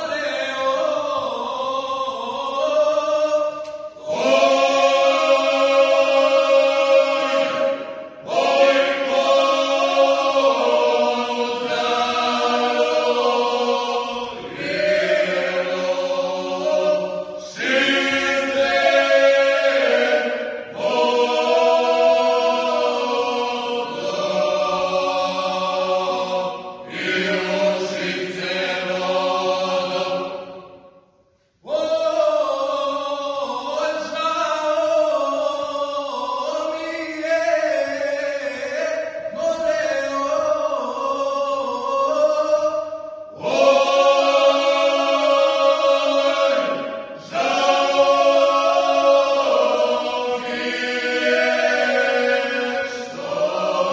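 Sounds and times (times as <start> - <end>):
male group singing unaccompanied: 0.0 - 30.6, 31.6 - 53.9.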